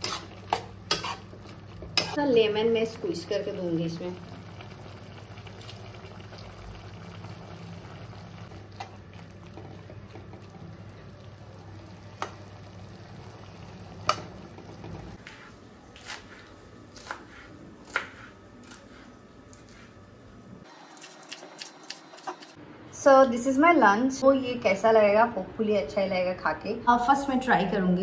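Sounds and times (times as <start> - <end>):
chicken frying: 0.0 - 15.2.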